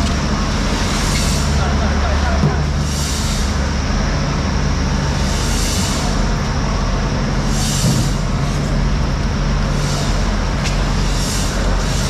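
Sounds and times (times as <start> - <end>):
low mechanical rumble: 0.0 - 12.0.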